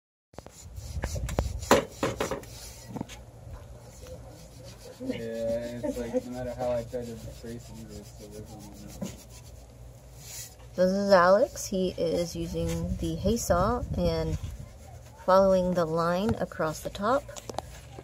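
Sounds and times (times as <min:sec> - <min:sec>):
saw rasping through earthen wall: 0:03.9 - 0:09.6.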